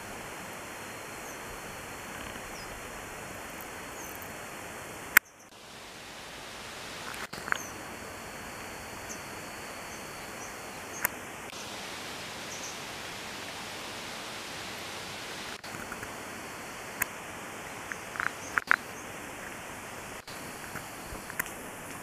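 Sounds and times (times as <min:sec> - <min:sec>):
steady outdoor hiss: 0:00.0 - 0:22.0
faint bird chirps: 0:01.2 - 0:01.5, 0:02.2 - 0:02.8, 0:03.9 - 0:04.2, 0:05.2 - 0:05.5, 0:07.4 - 0:07.8, 0:12.4 - 0:12.8
sharp clicks: 0:17.8 - 0:18.9.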